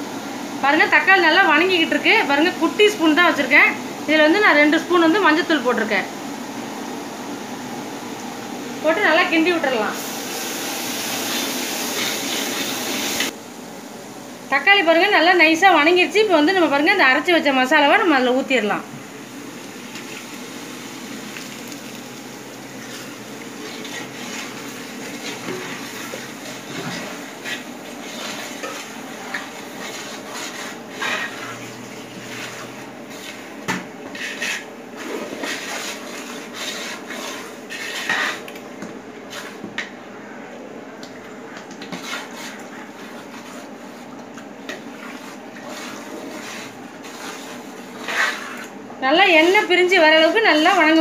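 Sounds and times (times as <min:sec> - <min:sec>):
frying hiss: 0:00.0 - 0:40.1, 0:41.1 - 0:51.0
steel spoon scraping pot: 0:22.9 - 0:33.4, 0:34.1 - 0:38.5, 0:45.0 - 0:48.7.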